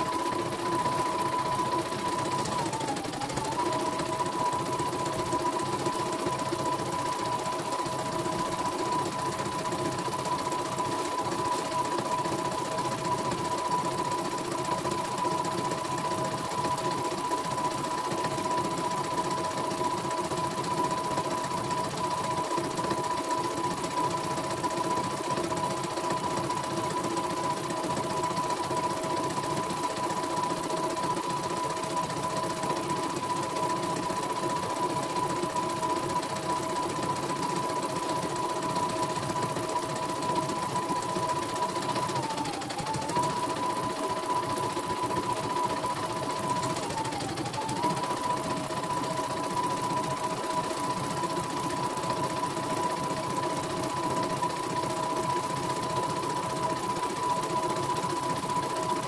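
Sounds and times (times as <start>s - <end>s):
machine whine: 0.0s - 59.0s.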